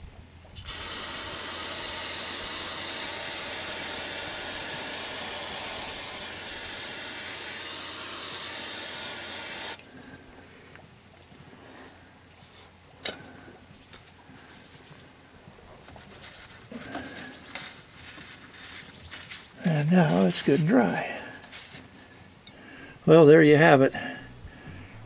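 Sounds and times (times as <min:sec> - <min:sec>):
aerosol spray hissing: 0:00.6 - 0:09.8.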